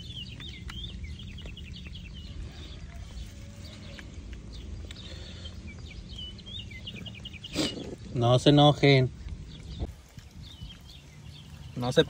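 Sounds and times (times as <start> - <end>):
small birds chirping: 0.0 - 12.0
steady low rumble: 0.0 - 12.0.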